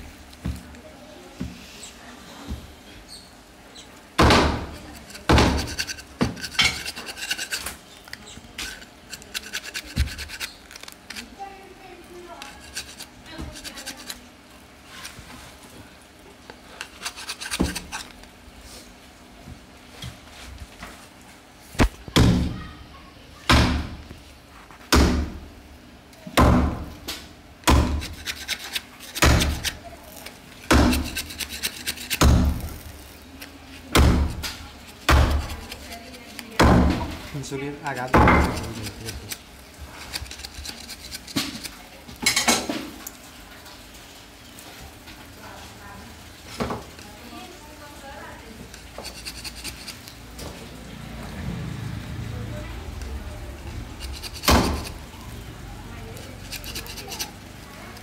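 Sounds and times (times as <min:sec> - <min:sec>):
knife scraping meat off bone: 0:04.6 - 0:11.4, 0:12.3 - 0:15.2, 0:16.8 - 0:18.3, 0:27.7 - 0:41.9, 0:48.7 - 0:50.2, 0:53.8 - 0:55.1, 0:56.2 - 0:58.0.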